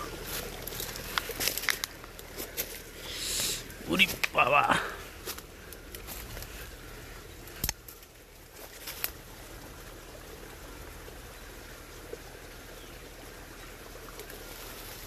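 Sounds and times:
dry twigs crackling: 0:00.0 - 0:09.3
outdoor background hiss: 0:00.0 - 0:15.0
small tick: 0:07.5 - 0:08.1.

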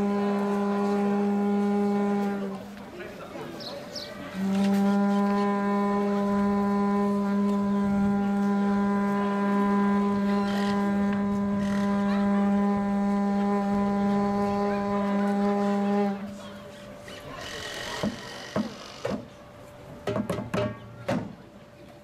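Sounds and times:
conch shell horn blast: 0:00.0 - 0:02.8, 0:04.3 - 0:19.0.

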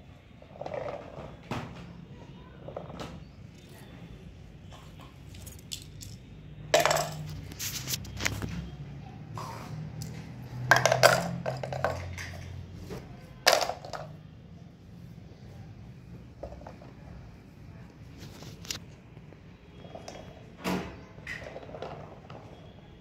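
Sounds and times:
plastic blocks clattering into toy truck: 0:06.8 - 0:07.9, 0:10.7 - 0:12.7, 0:13.5 - 0:14.2.

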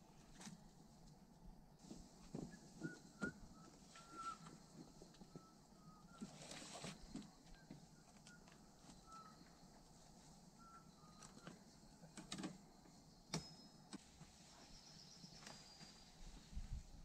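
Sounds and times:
faint high chirps: 0:02.6 - 0:12.1, 0:12.7 - 0:16.8.

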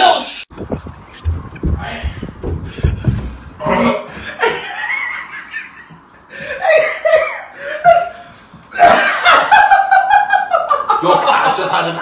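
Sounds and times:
people laughing: 0:04.2 - 0:11.9.

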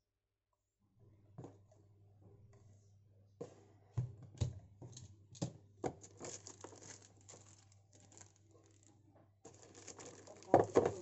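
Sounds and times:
plastic packaging crinkling: 0:06.0 - 0:11.0.

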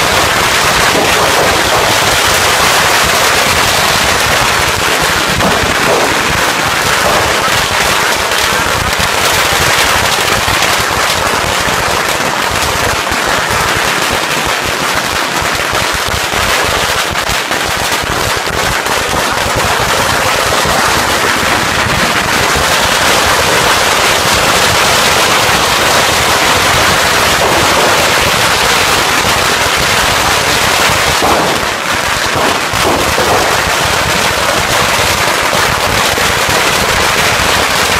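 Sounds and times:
firecrackers exploding: 0:00.0 - 0:37.9.

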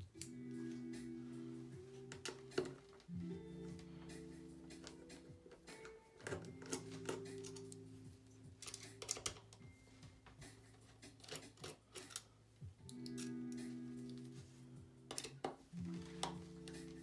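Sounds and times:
soft background music: 0:00.0 - 0:17.0
screwdriver clicking on metal screws: 0:08.6 - 0:09.5, 0:11.2 - 0:12.3, 0:12.9 - 0:13.6.

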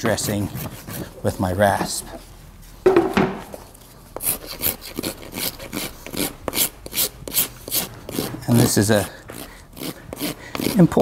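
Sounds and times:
rasp filing hard material: 0:00.0 - 0:01.6, 0:04.2 - 0:11.0.

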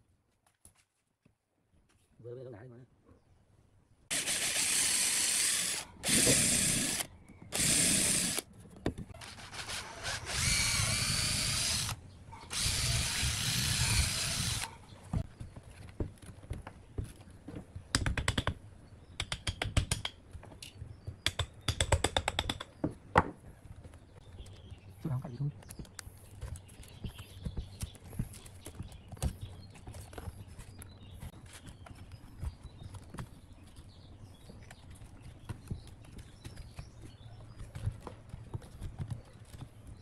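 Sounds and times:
cordless drill boring into wood: 0:04.1 - 0:08.4, 0:09.2 - 0:14.7
tools clicking and tapping wood: 0:15.2 - 0:24.6.

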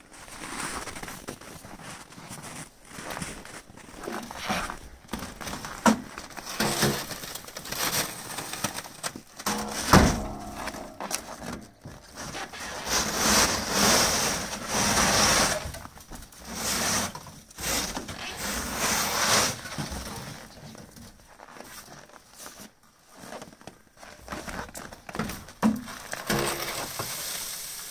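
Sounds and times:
snow swept off metal: 0:09.5 - 0:15.8, 0:16.4 - 0:20.2, 0:26.0 - 0:27.9.

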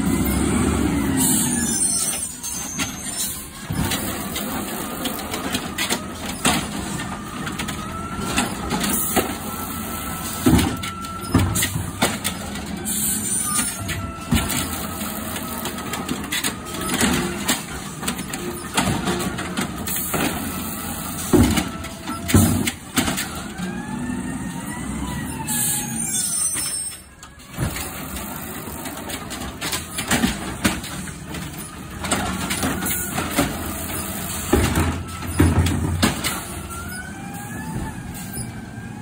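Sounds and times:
garbage truck engine: 0:00.0 - 0:39.0
cart knocks and bangs: 0:21.3 - 0:23.3, 0:34.4 - 0:36.5.

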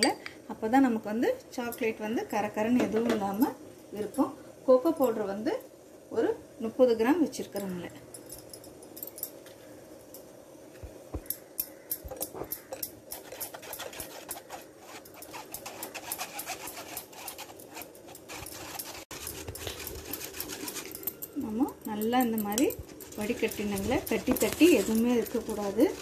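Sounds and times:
spoon scraping through metal sieve: 0:12.1 - 0:26.0.

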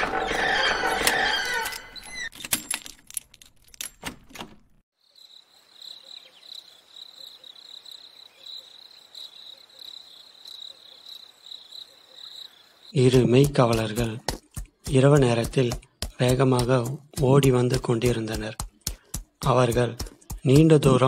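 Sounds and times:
metal chain clinking: 0:01.8 - 0:04.0
crickets chirping: 0:05.0 - 0:13.1.

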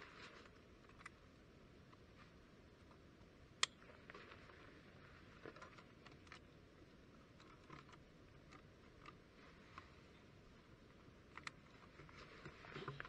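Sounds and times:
clicks and rustles of gear: 0:03.6 - 0:06.6, 0:07.2 - 0:10.0, 0:11.2 - 0:13.0.

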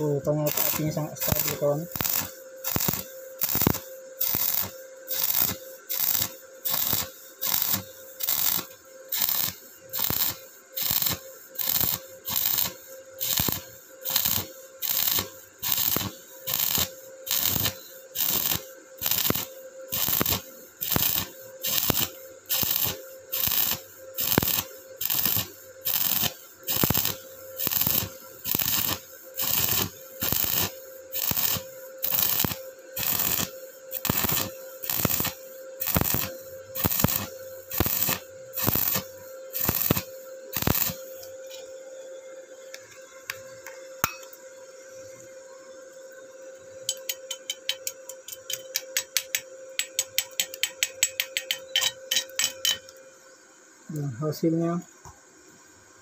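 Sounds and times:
welding arc crackling: 0:00.0 - 0:41.6
welder hum: 0:00.0 - 0:56.0.

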